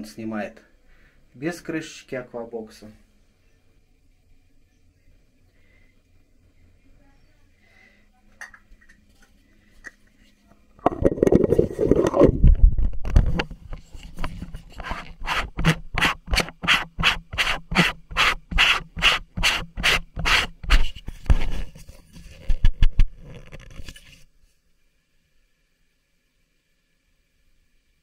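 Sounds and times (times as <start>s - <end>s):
hand scraping camera housing: 10.9s - 24.2s.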